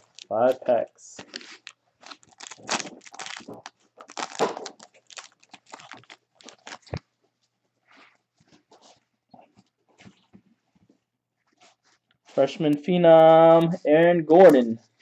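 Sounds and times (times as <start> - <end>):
foil wrapper tearing and crinkling: 0.0 - 7.0.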